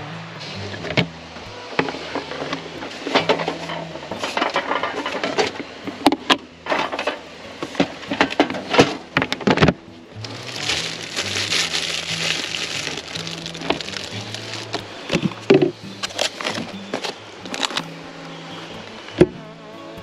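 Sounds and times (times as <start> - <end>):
dishes and utensils clattering: 2.4 - 5.6, 6.6 - 9.7.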